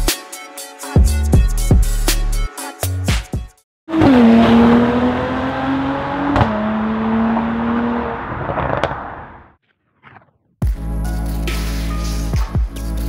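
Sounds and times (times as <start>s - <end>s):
hip-hop beat: 0.0s - 3.6s, 10.6s - 13.0s
car engine sound effect: 3.9s - 9.6s.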